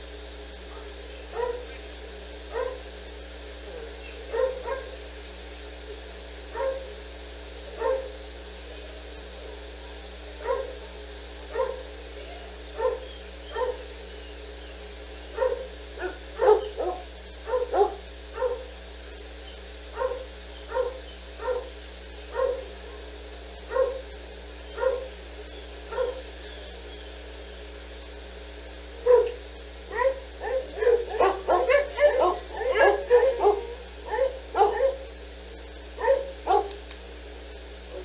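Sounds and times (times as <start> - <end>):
dog barking: 0.7 - 1.8, 2.5 - 2.9, 3.7 - 5.0, 6.5 - 7.0, 7.8 - 8.2, 10.4 - 10.8, 11.5 - 11.9, 12.8 - 13.9, 15.3 - 18.7, 19.9 - 23.1, 23.7 - 24.1, 24.7 - 25.2, 25.9 - 26.8, 29.0 - 35.1, 36.0 - 36.8.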